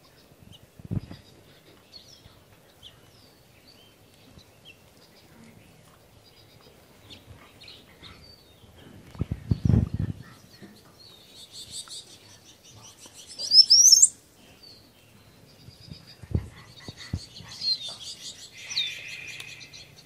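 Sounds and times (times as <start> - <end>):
songbird singing: 0.0 - 20.0.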